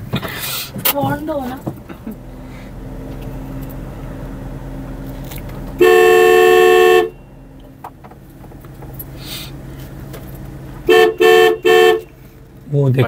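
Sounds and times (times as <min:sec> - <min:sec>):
car horn blast: 0:05.6 - 0:07.8, 0:10.7 - 0:12.4.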